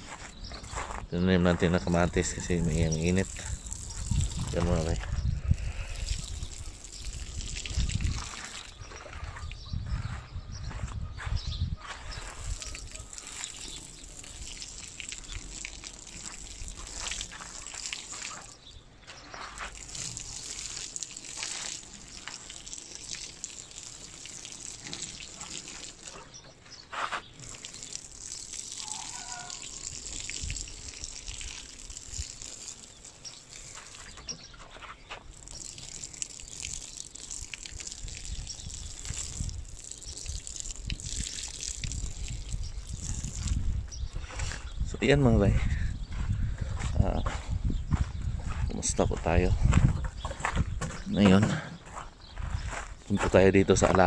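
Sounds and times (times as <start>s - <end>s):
water pouring onto plants: 1.4s - 9.6s, 12.1s - 45.3s, 52.4s - 54.0s.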